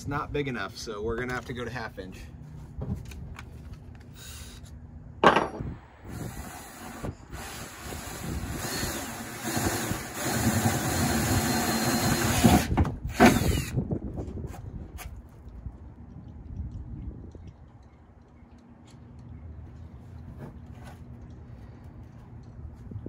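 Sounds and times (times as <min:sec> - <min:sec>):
cordless drill grinding through metal: 0:06.0 - 0:13.8.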